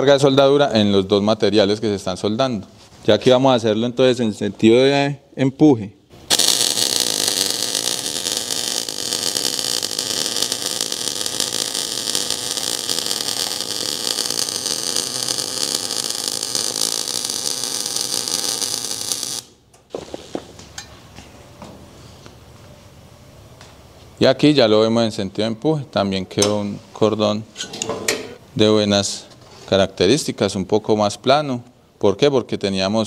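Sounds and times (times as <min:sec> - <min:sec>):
welding arc crackling: 0:06.2 - 0:20.6.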